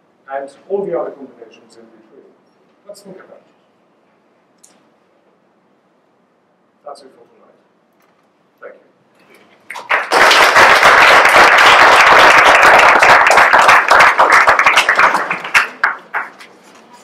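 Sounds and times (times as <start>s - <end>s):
audience applauding: 9.7s - 16.6s.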